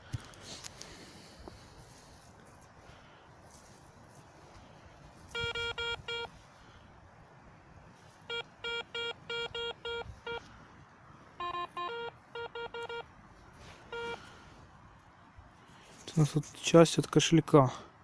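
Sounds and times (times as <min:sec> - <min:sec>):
lower and higher detector tones: 0:05.2 - 0:06.3, 0:08.3 - 0:10.5, 0:11.4 - 0:14.2
metal detector beeping: 0:05.2 - 0:06.4, 0:08.2 - 0:10.5, 0:11.4 - 0:14.3.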